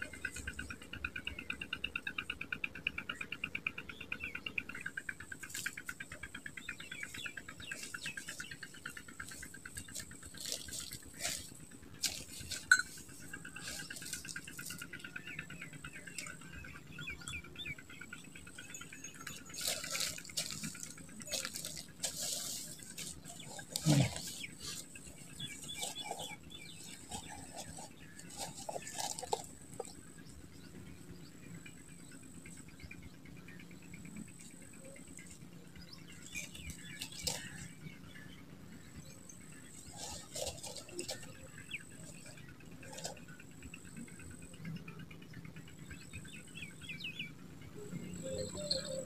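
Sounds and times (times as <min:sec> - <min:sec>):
animal pulsing chirp: 0:04.5 - 0:30.5, 0:46.3 - 0:49.0
thin high steady whine: 0:04.7 - 0:49.0
rustles: 0:04.8 - 0:16.4, 0:19.2 - 0:30.4, 0:34.1 - 0:38.3, 0:38.9 - 0:44.2.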